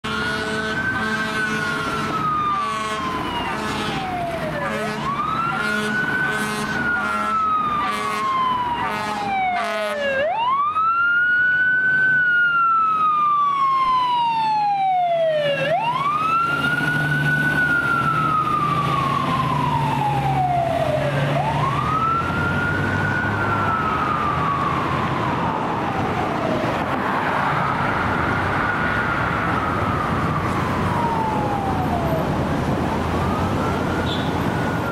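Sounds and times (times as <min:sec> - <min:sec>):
air horn blasts: 0:00.0 - 0:04.0, 0:04.6 - 0:10.0, 0:34.0 - 0:34.4
fire engine siren wailing: 0:00.0 - 0:34.9
truck engine rumbling: 0:00.0 - 0:34.9.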